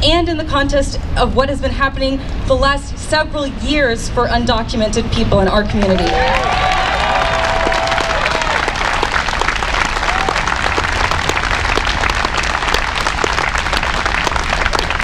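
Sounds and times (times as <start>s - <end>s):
crowd applauding: 6.0s - 15.0s.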